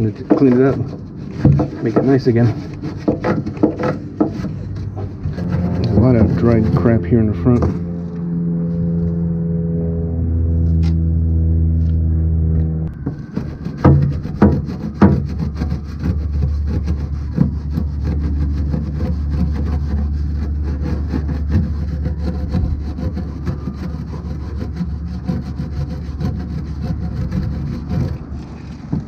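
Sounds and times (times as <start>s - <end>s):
brush knocks: 0.0s - 7.8s
wire brush scrubbing metal rails: 0.0s - 8.9s, 13.0s - 29.0s
steady low hum: 0.0s - 29.0s.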